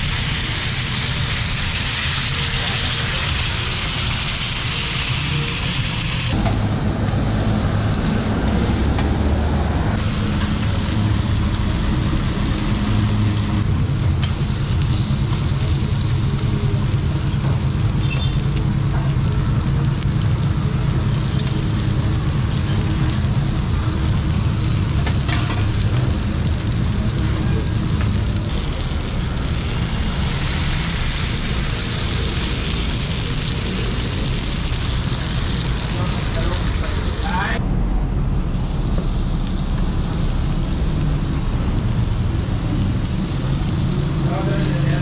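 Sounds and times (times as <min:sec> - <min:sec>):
meat sizzling on hot plate: 0:00.0 - 0:06.4, 0:10.0 - 0:37.6, 0:38.4 - 0:45.0
low continuous rumble: 0:10.0 - 0:45.0.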